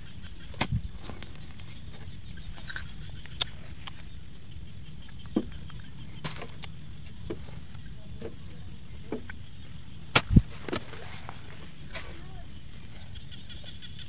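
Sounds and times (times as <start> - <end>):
hoe chopping into soil: 0.4 - 1.2, 6.2 - 6.7, 10.0 - 12.3.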